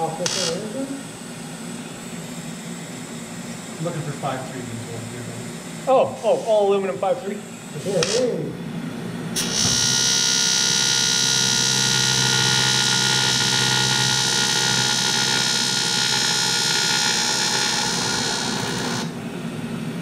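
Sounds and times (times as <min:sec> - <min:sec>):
welding arc buzzing: 0:00.0 - 0:01.2, 0:05.5 - 0:08.6, 0:09.4 - 0:19.2.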